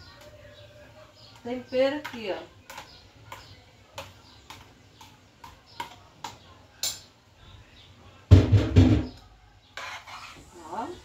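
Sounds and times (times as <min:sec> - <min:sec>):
spoon tapping and scraping bowl: 0:01.2 - 0:07.1.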